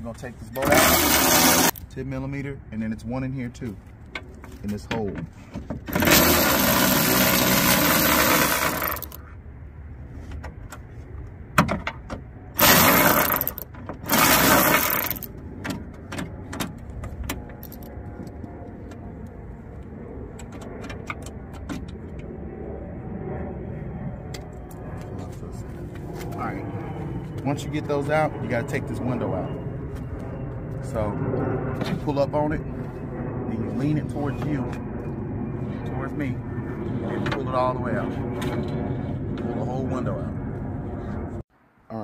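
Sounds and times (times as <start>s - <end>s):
electric ratchet running: 0.6s - 1.8s, 5.9s - 9.2s, 12.6s - 15.3s, 17.6s - 17.9s.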